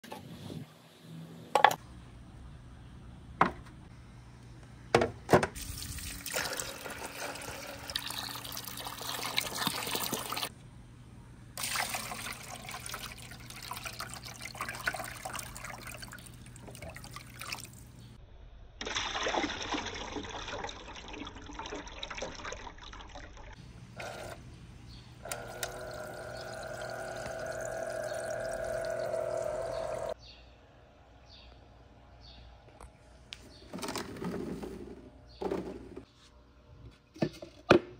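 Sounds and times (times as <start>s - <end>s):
water running and trickling: 5.6s - 10.5s, 11.6s - 17.9s, 25.3s - 30.2s
steady humming tone: 23.6s - 33.4s.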